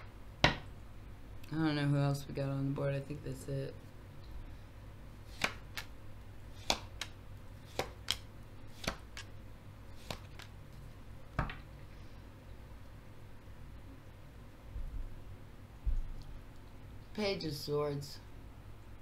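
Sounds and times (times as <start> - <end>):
steady low hum: 0.0 - 19.0
cards being shuffled: 5.3 - 9.3, 9.9 - 10.6.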